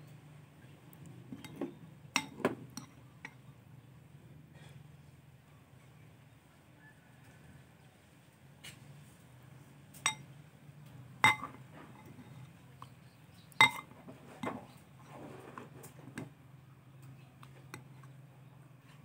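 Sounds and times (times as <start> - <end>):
metal spoon clinking on ceramic bowl: 1.4 - 3.4, 10.0 - 10.3, 11.2 - 12.4, 13.6 - 13.9.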